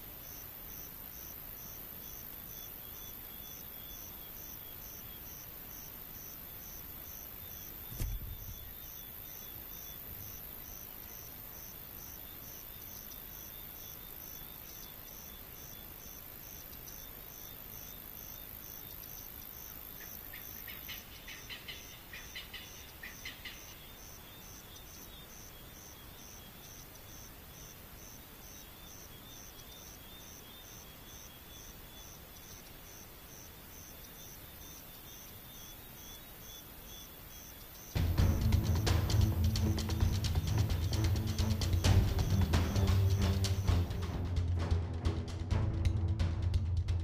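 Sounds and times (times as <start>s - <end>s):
insects chirping: 0.0s - 44.4s.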